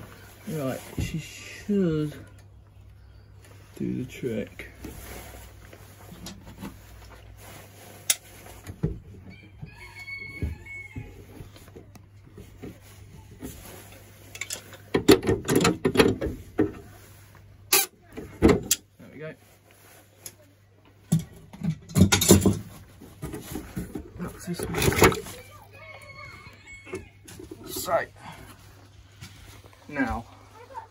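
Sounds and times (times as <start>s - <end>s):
metal spanner clinking and scraping: 14.3s - 14.8s.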